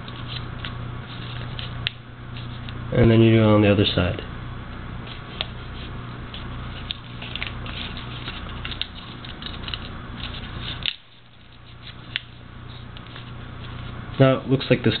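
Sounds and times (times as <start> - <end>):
low hum: 0.0 - 15.0
paper crinkling: 5.0 - 14.2.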